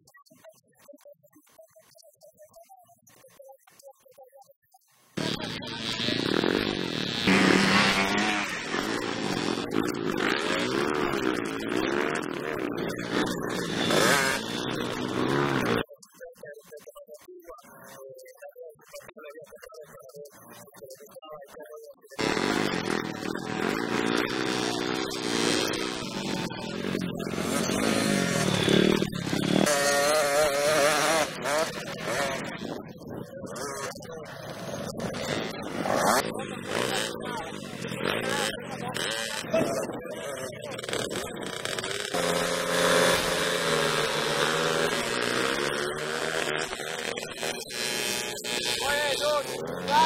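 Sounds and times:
dirt bike engine revving: 5.2 - 15.9, 22.2 - 50.0.

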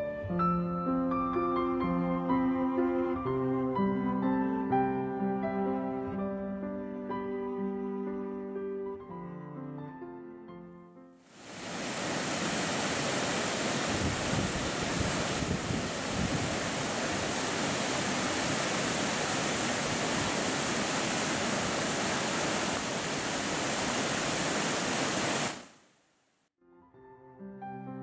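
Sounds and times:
stream rushing over rocks: 11.3 - 25.8.

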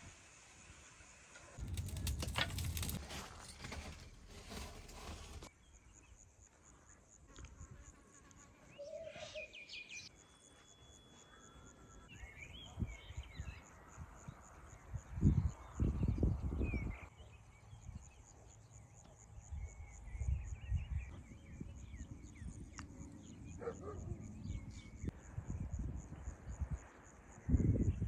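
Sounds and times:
rustling and clicks: 1.4 - 5.5.

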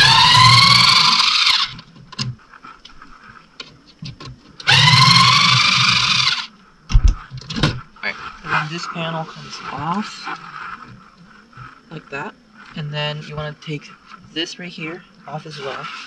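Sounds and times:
power drill whining: 0.0 - 1.9, 4.6 - 6.5.

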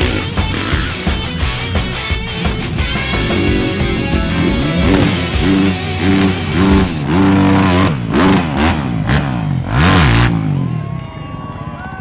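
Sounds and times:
dirt bike engine revving: 0.0 - 10.8.

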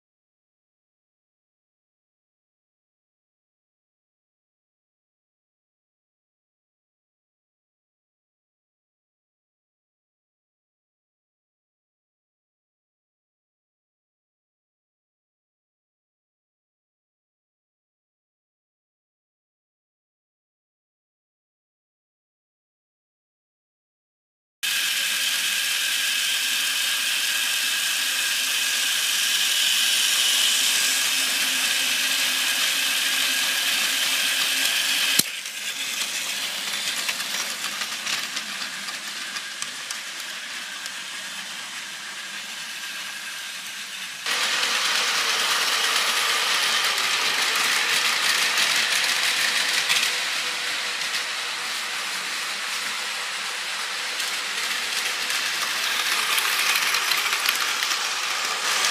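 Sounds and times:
toy train motor whine: 24.6 - 58.9
toy train wheels rattling: 24.6 - 58.9.

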